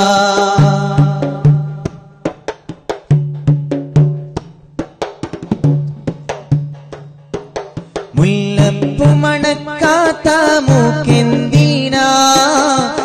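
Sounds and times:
sharp percussion strikes: 0.0s - 13.0s.

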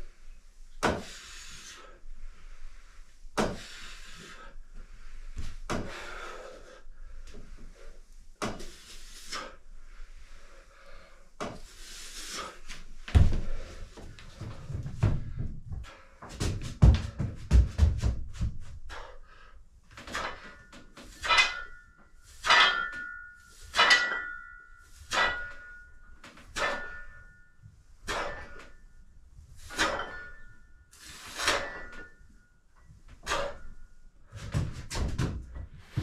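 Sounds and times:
heavy low thuds: 13.0s - 18.8s
metal weights clinking: 20.1s - 29.0s, 29.6s - 32.4s.

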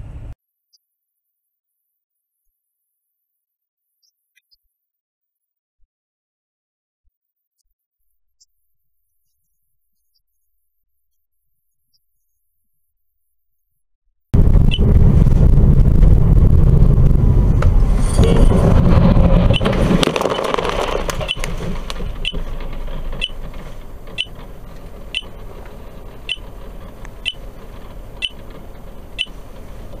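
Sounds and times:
road and engine rumble: 0.0s - 0.4s, 14.4s - 30.0s
dirt hitting car: 14.4s - 30.0s.

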